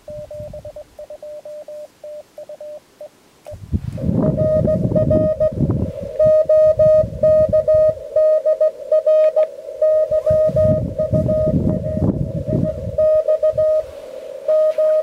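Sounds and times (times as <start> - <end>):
wind rumble on microphone: 0.0 - 1.0, 3.5 - 15.0
morse code tone: 0.0 - 2.8, 3.5 - 5.6, 6.2 - 13.9, 14.5 - 15.0.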